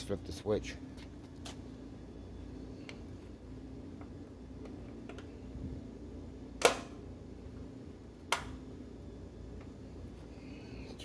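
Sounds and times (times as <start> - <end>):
burner control switch clicks: 6.6 - 7.0.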